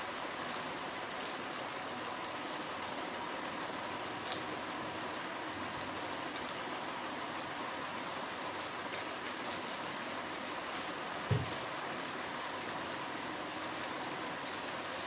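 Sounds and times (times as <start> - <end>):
steady hiss: 0.0 - 15.0
plastic bag crinkling: 7.3 - 15.0.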